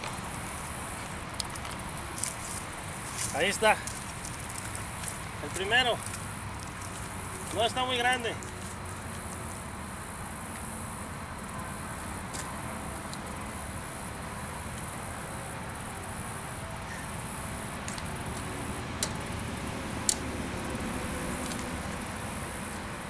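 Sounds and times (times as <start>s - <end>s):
insects buzzing: 0.0s - 23.0s
sharp clicks: 17.8s - 20.4s.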